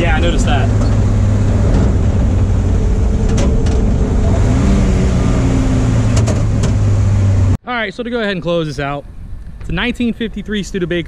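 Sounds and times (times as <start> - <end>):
truck engine droning: 0.0 - 7.6.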